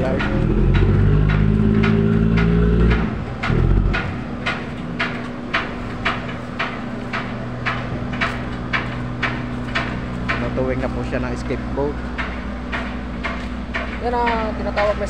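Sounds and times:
sharp knocks: 0.0 - 10.6
diesel engine humming: 0.0 - 15.0.

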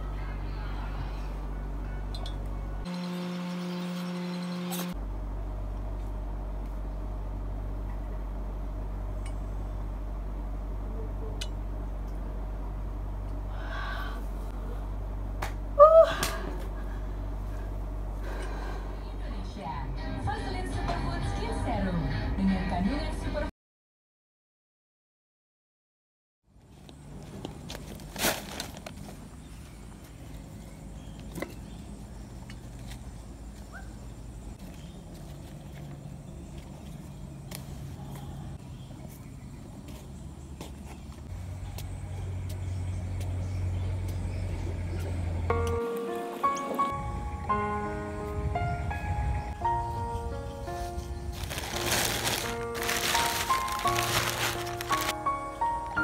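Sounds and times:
steady low hum: 0.0 - 20.6
paper packets handled: 27.3 - 29.4, 51.3 - 55.9
plastic sheeting rustling: 27.7 - 29.2, 51.3 - 55.2.

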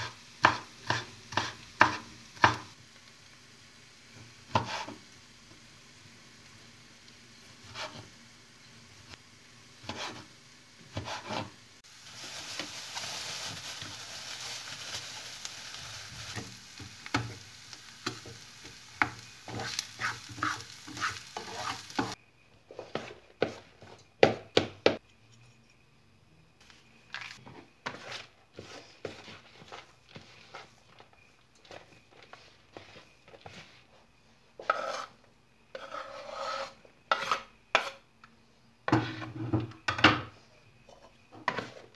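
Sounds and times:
food sizzling in frying pan: 0.0 - 22.2.

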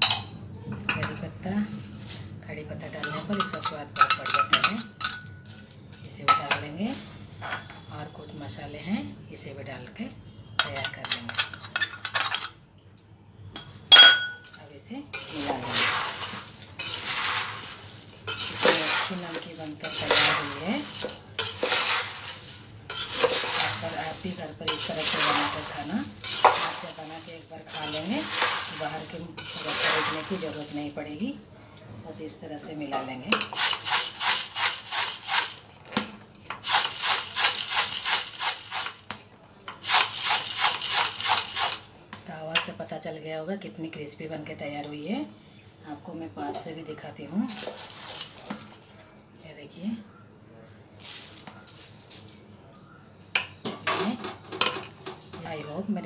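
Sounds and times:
crispy snack mix rattling: 15.2 - 31.0, 33.4 - 39.1, 39.7 - 41.9, 47.5 - 48.9, 51.0 - 52.6.

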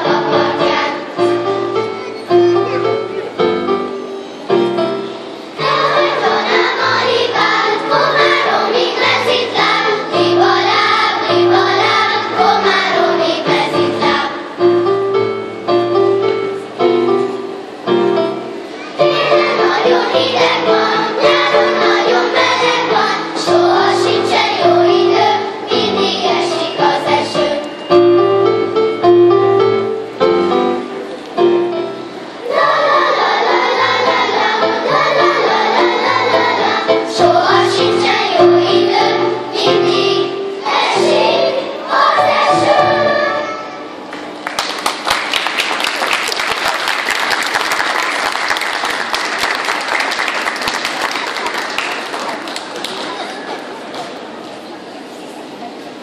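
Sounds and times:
instrumental accompaniment: 0.0 - 44.2
children's choir singing: 0.0 - 53.0
applause: 44.1 - 53.8.

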